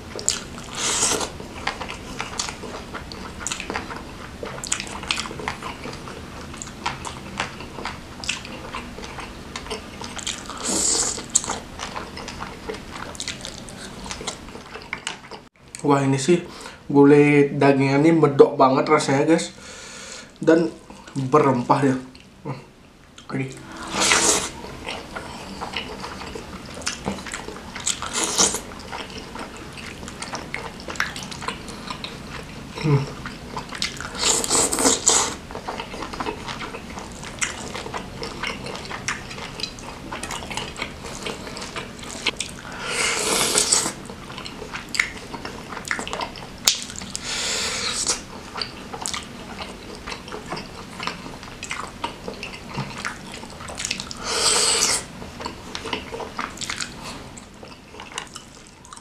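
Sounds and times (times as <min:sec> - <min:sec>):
wet chewing: 0:00.1 - 0:15.5, 0:23.6 - 0:59.0.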